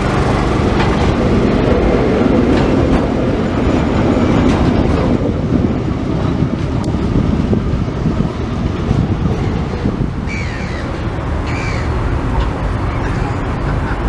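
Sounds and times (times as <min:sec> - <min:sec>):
steam train rumbling: 0:00.0 - 0:14.0
bird calling: 0:10.2 - 0:12.1, 0:12.8 - 0:14.0.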